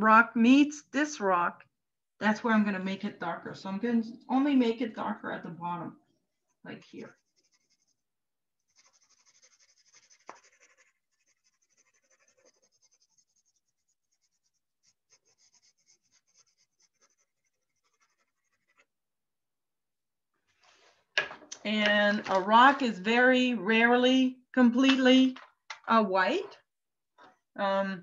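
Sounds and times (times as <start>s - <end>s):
pencil scratching on paper: 6.3s - 19.0s.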